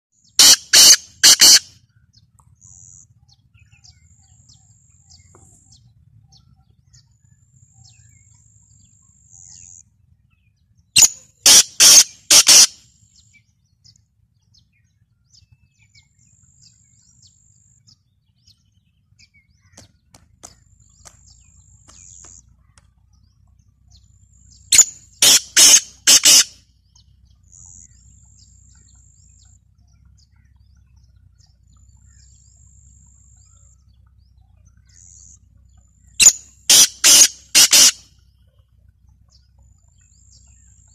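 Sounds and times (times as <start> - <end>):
bird calling in quick short notes: 0.3 - 1.7, 24.7 - 26.6, 36.2 - 38.1.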